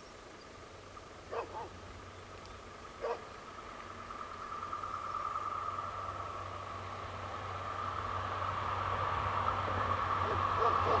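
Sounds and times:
high whine of approaching train: 0:00.0 - 0:11.0
dog barking: 0:01.3 - 0:01.8, 0:03.0 - 0:03.2, 0:10.2 - 0:11.0.

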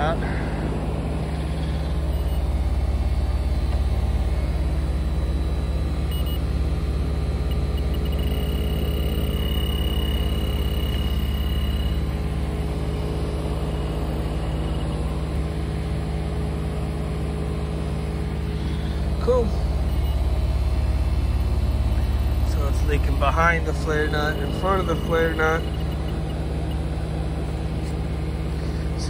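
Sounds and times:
heat pump compressor and fan hum: 0:00.0 - 0:29.0
leak detector beeping tone: 0:01.9 - 0:04.5, 0:05.2 - 0:15.8, 0:19.6 - 0:27.1.

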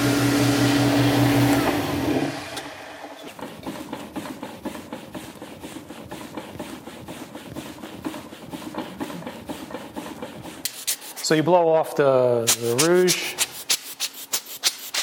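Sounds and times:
rubbing strokes on a board: 0:03.2 - 0:15.0.

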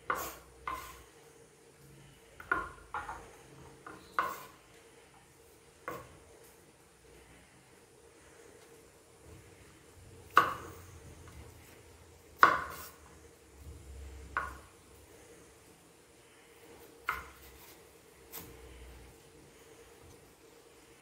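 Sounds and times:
knife striking cutting board: 0:12.4 - 0:13.0.

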